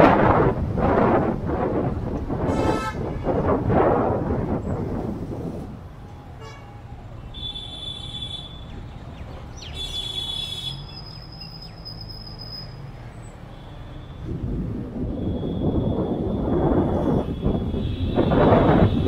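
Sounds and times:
traffic rumble: 0.0s - 19.0s
vehicle horns tooting: 2.5s - 3.4s, 6.4s - 8.7s, 9.6s - 11.2s, 15.2s - 19.0s.

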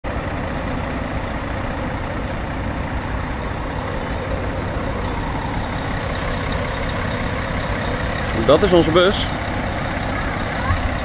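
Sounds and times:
diesel engines idling: 0.0s - 11.0s
brief hisses: 3.9s - 4.4s.

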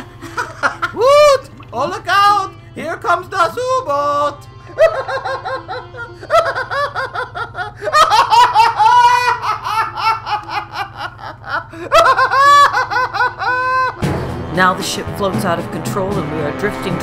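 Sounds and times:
low steady hum: 0.0s - 13.9s
high-pitched laughter and giggling: 0.2s - 1.4s, 4.6s - 14.0s.

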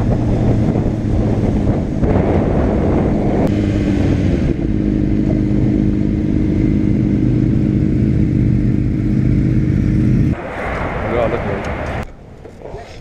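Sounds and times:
motorcycle engine at low revs: 0.0s - 10.4s.

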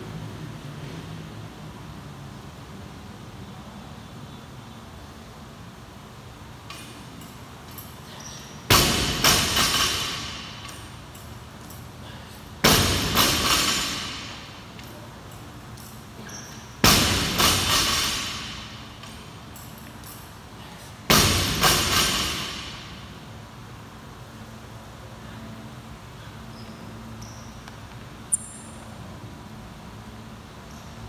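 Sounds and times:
barbell dropping on rubber floor: 8.7s - 10.9s, 12.6s - 14.6s, 16.4s - 19.2s, 21.1s - 23.0s.

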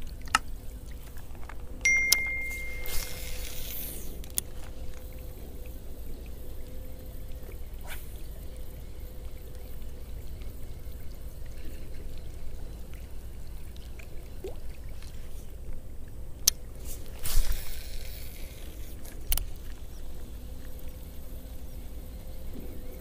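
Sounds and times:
fishing line whirring off spool: 1.9s - 13.6s, 16.7s - 23.0s
fishing reel clicking: 2.1s - 4.5s, 16.4s - 20.2s.

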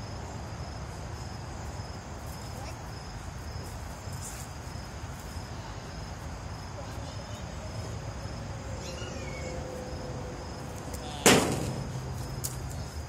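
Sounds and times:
insect chirping: 0.0s - 13.0s.

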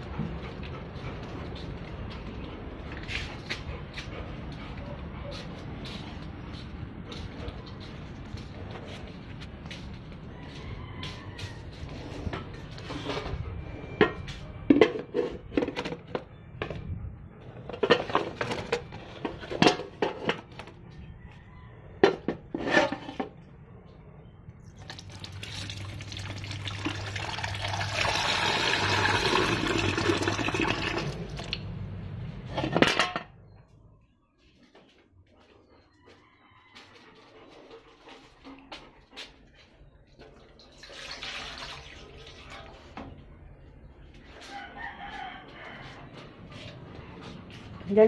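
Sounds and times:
metal pails clattering: 17.7s - 20.6s, 32.5s - 33.3s.

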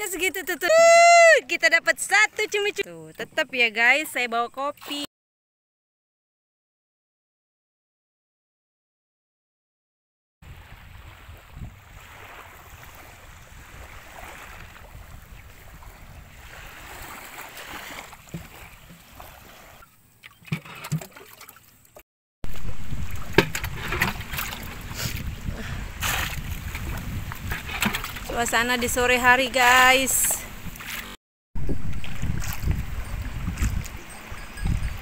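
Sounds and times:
water lapping around canoe: 10.4s - 35.0s
water sloshing with low rumble: 10.4s - 35.0s
canoe knocks and splashes: 11.0s - 21.7s, 22.5s - 28.4s, 31.7s - 33.9s.

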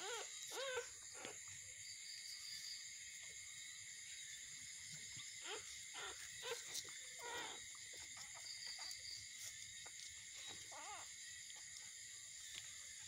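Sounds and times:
puppies whimpering: 0.0s - 1.4s, 5.4s - 8.1s, 10.4s - 11.1s.

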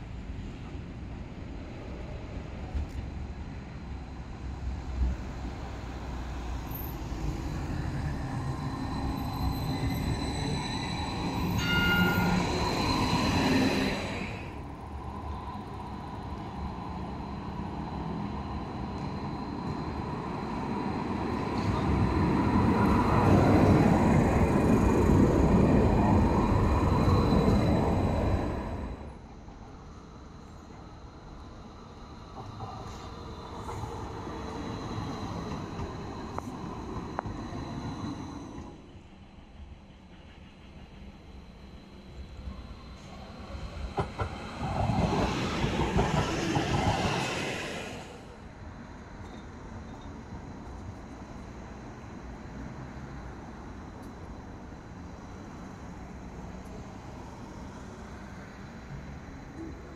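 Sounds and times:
tram rolling on rails: 0.0s - 59.9s
high squeal of tram wheels: 6.4s - 14.7s.

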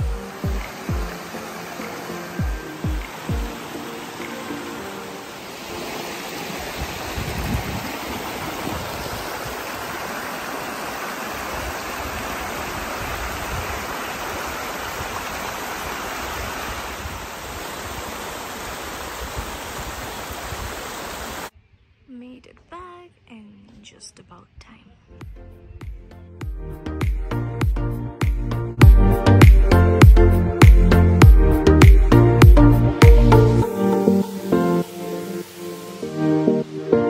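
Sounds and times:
stream and waterfall rushing: 0.0s - 21.5s, 31.8s - 37.0s.

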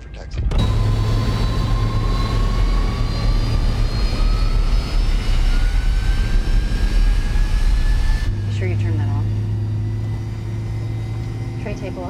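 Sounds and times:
jet engines roaring: 0.4s - 12.0s.

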